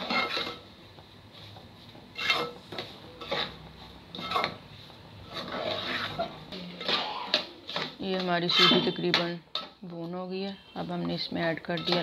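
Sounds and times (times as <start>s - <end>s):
metal spoon scraping a pot: 0.0s - 0.7s, 2.1s - 4.6s, 5.2s - 9.8s, 11.2s - 12.0s.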